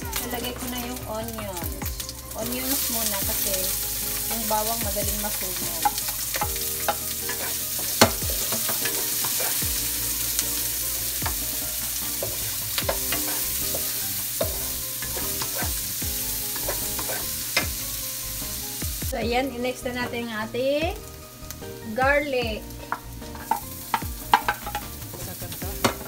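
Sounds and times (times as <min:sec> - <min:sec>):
meat sizzling in a wok: 0:00.0 - 0:26.0
wooden spatula knocking on pan: 0:04.8 - 0:09.8, 0:11.2 - 0:11.6, 0:12.2 - 0:15.8, 0:22.8 - 0:25.0.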